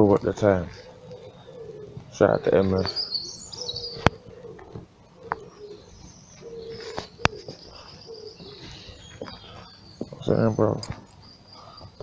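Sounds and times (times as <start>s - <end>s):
dove cooing: 0.0s - 10.8s
faint bird chirps: 0.2s - 12.0s.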